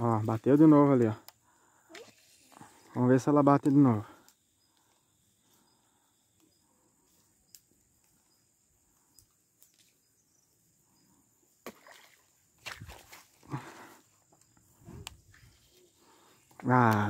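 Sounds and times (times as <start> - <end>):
fish splash on water: 11.6 - 13.4.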